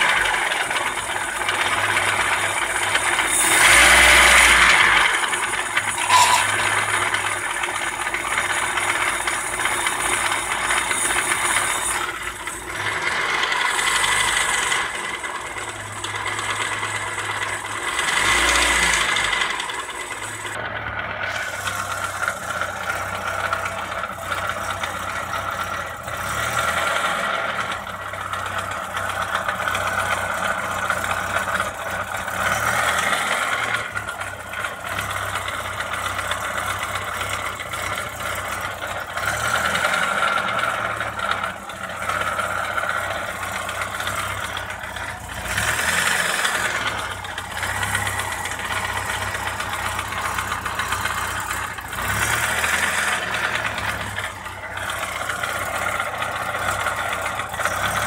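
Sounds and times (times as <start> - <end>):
car engine idling: 0.0 - 58.0
engine rattling and knocks: 0.0 - 58.0.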